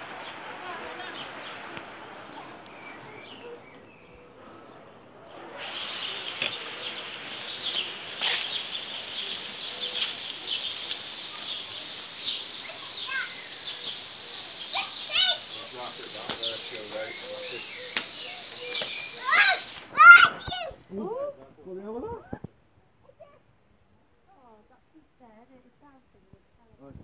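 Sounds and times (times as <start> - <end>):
dense bird chorus: 0.0 - 20.8.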